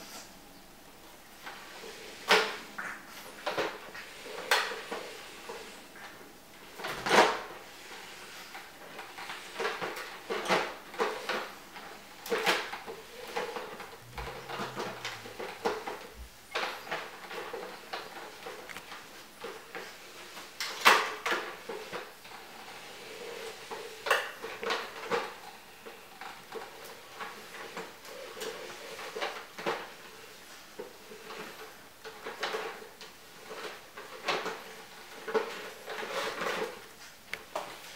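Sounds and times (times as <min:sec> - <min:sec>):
plastic clacks and knocks: 0:09.0 - 0:19.9.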